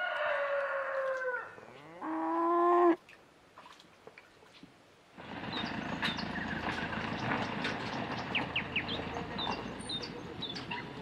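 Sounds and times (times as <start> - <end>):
small birds chirping: 5.4 - 11.0.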